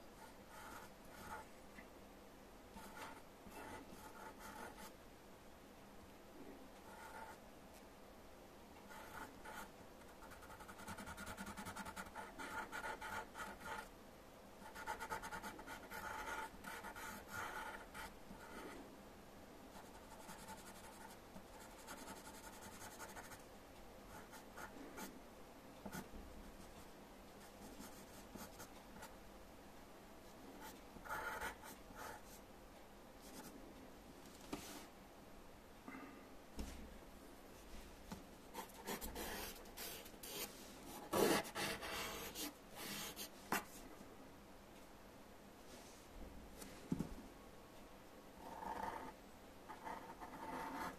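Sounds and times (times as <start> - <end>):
pencil scratching on paper: 0.2 - 1.4, 2.8 - 4.9, 8.9 - 13.9, 14.6 - 18.8, 19.7 - 23.4, 30.6 - 32.3, 38.6 - 43.6, 48.4 - 50.9.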